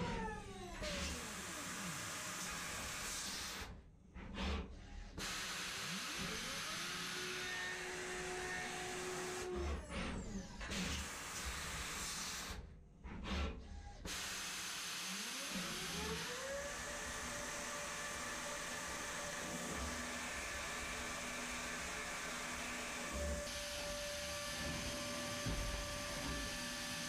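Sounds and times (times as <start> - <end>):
milling machine cutting hiss: 5.2 - 8.2.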